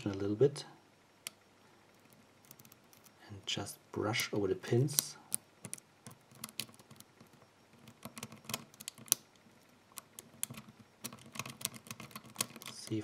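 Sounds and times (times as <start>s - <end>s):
lock pick clicking on pins: 1.2s - 3.2s, 4.8s - 9.3s, 9.9s - 13.0s.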